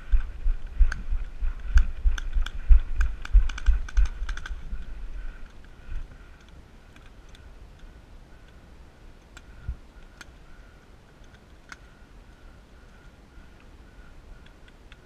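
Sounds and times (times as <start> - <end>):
faint steady high tone: 11.7 - 15.0.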